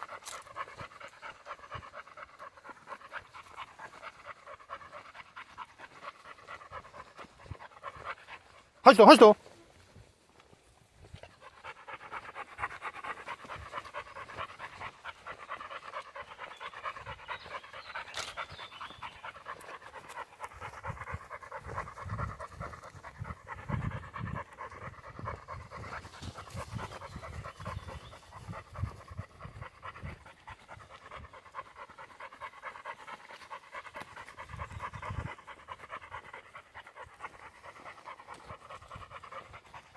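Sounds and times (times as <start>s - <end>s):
dog panting: 0.0s - 39.9s.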